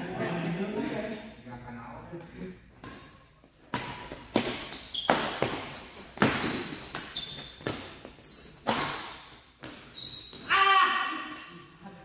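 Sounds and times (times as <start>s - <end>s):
shoes squeaking on court: 2.8s - 10.5s
rackets striking shuttlecock: 3.7s - 9.8s.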